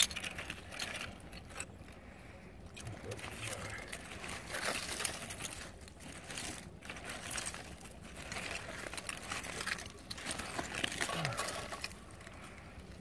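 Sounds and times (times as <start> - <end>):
small crunches and clicks: 0.0 - 13.0
hand scraping through soil and leaves: 2.8 - 13.0.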